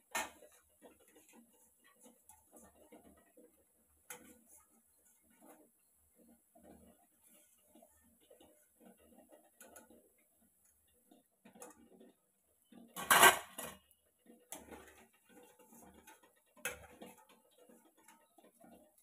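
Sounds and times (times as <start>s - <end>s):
wire skimmer scraping metal pan: 12.6s - 13.9s.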